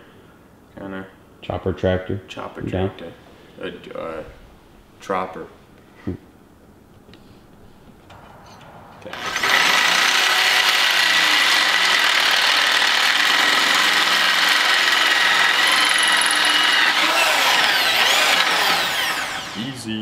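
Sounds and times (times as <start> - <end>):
drill hole saw cutting metal tube: 9.1 - 19.8.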